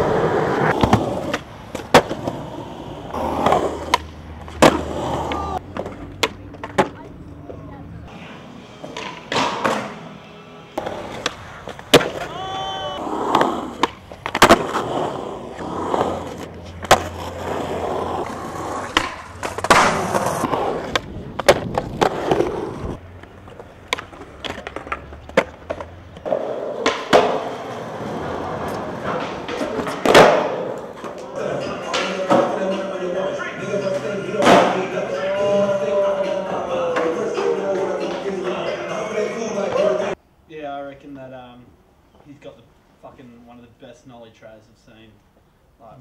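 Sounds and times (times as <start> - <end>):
skateboard grinding scrape: 0.0 - 6.0, 10.8 - 12.4, 13.0 - 24.8, 25.6 - 31.8
skateboard popping and landing: 0.0 - 7.2, 8.8 - 10.0, 10.8 - 31.3
skateboard wheels rolling on concrete: 0.0 - 40.2.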